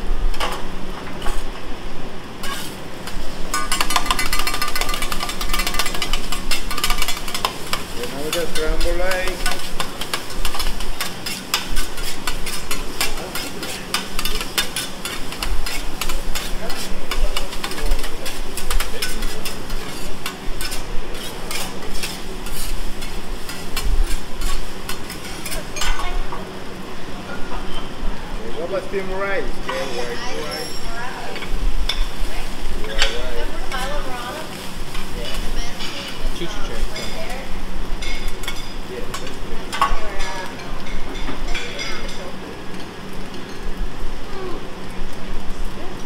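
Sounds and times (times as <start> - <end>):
food sizzling: 0.0 - 46.0
metal spatulas clacking on griddle: 2.4 - 26.1, 38.0 - 42.2.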